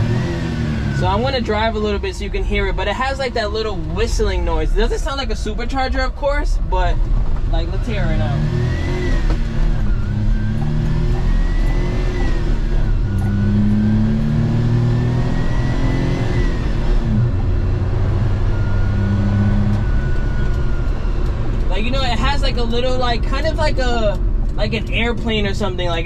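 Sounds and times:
small truck engine accelerating: 6.9 - 22.0
whistling engine whine: 7.6 - 23.0.

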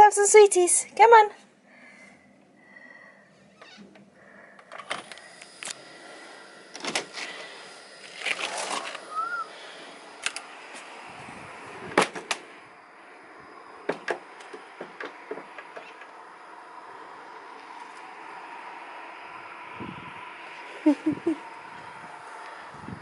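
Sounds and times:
scattered knocks and clicks: 13.9 - 16.1.

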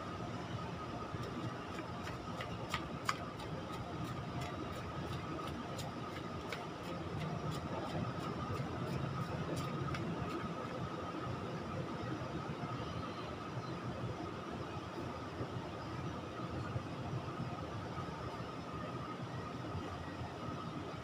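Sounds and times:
shoes tapping on concrete: 1.2 - 10.4.

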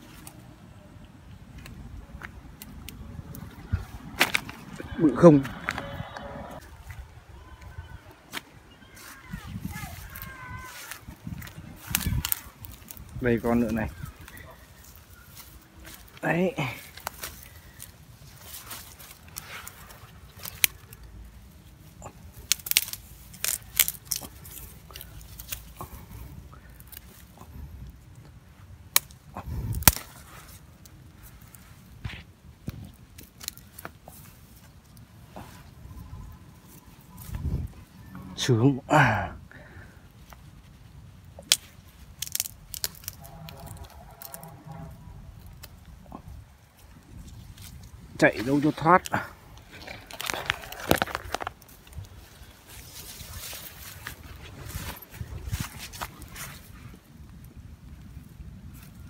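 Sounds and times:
dry grass and twigs snapping: 0.0 - 38.1, 39.7 - 59.0
sharp cracks: 22.0 - 25.7, 28.9 - 30.3, 41.3 - 44.8.

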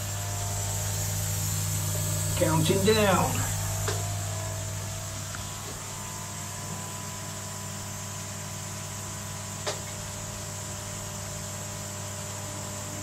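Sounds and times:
air pumps humming: 0.0 - 12.0
sharp click: 9.6 - 10.0.

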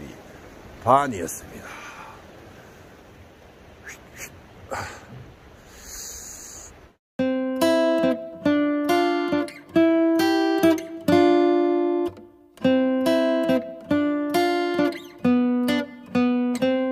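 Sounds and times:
acoustic guitar strumming chords: 7.2 - 16.9.

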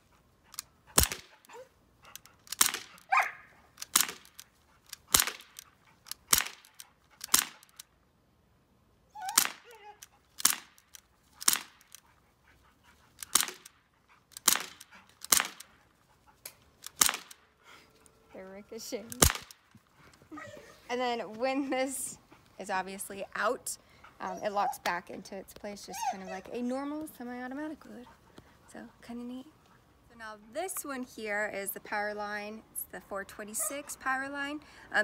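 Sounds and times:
air pistol shots: 1.0 - 1.5, 2.4 - 7.8, 9.3 - 9.7, 10.4 - 12.0, 13.2 - 13.7, 14.3 - 15.7, 16.8 - 17.4, 19.1 - 19.7
dog whining: 1.4 - 2.2, 9.1 - 10.2, 20.3 - 20.9, 24.1 - 25.0, 25.8 - 26.9.

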